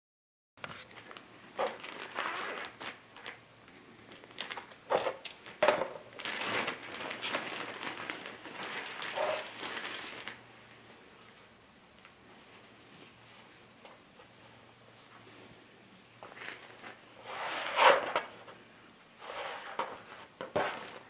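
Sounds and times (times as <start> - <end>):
plastic bag crinkling: 0.6 - 10.5, 16.2 - 18.5
plastic bag snapping: 1.0 - 3.4, 4.1 - 10.4.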